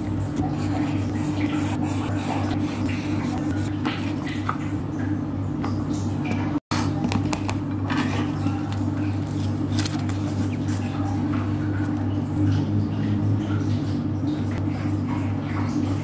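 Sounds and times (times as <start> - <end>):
marker strokes on paper: 0.6 - 3.7
notebook pages rustling: 7.1 - 11.0.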